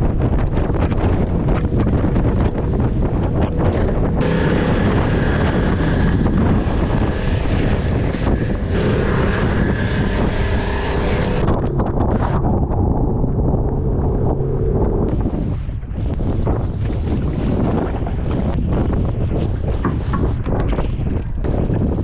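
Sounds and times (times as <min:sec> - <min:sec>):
outboard motor running: 0:00.0 - 0:15.4
wind buffeting microphone: 0:00.0 - 0:22.0.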